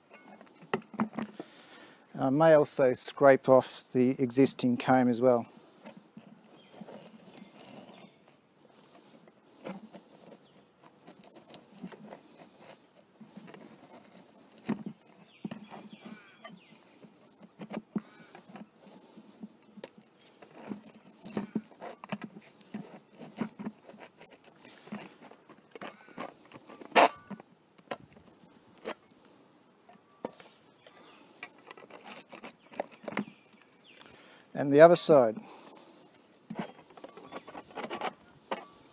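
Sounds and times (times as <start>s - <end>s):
wax crackling and clicking: 5.3s - 34.5s.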